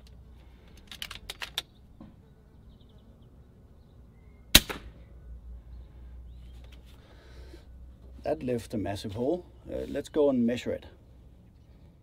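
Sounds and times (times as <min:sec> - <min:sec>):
air rifle shot crack: 0:04.5 - 0:05.0.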